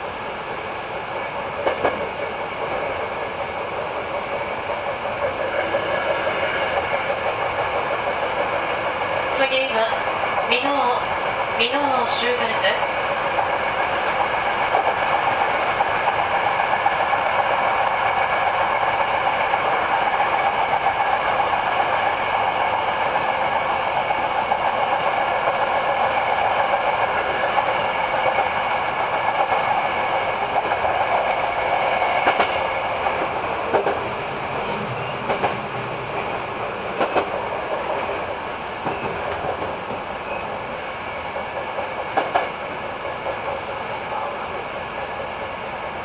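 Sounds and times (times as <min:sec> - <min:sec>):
train wheel and running noise: 0:00.0 - 0:46.0
sharp rail clicks: 0:01.6 - 0:02.1, 0:30.5 - 0:34.1, 0:35.2 - 0:38.2, 0:41.4 - 0:42.6.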